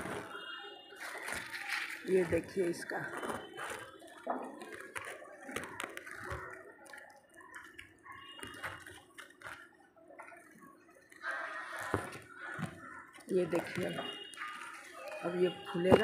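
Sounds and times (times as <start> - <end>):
leaves rustling against hand: 1.0 - 10.4.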